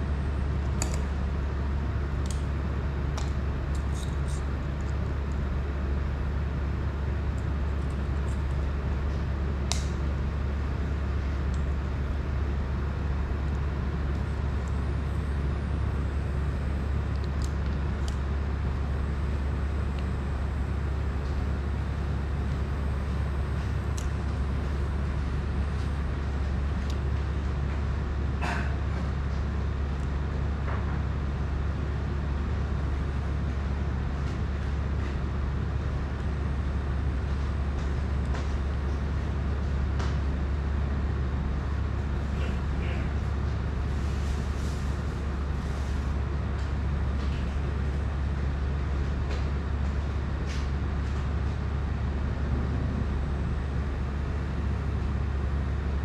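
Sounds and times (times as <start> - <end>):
low mechanical hum: 0.0 - 56.0.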